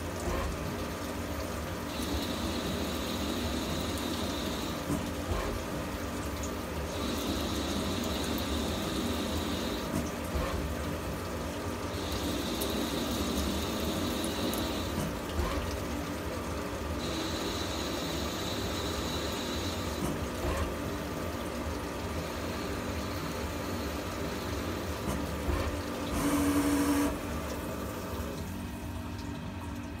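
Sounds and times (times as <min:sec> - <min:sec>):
coolant spraying: 0:22.3 - 0:27.9.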